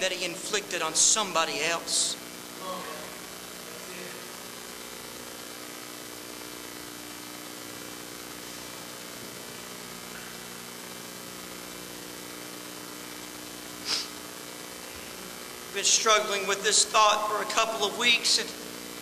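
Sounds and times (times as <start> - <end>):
electrical hum: 0.0 - 19.0
faint hiss: 2.1 - 16.4
brief sharp noise: 13.8 - 14.1.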